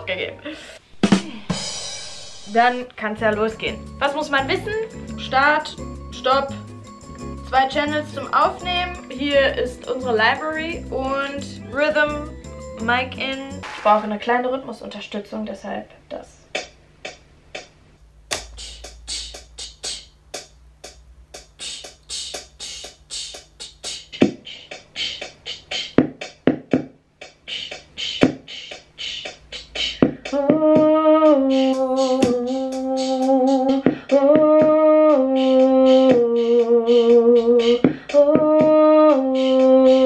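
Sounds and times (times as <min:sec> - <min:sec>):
crisp ticking beat: 0:02.4 - 0:14.1, 0:16.5 - 0:40.0
woman singing long notes: 0:29.8 - 0:40.0.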